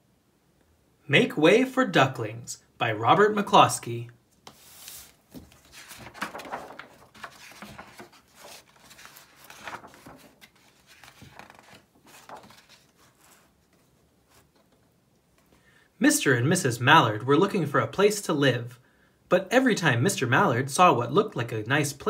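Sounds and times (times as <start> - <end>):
book pages rustling and tapping: 4.4 - 15.5.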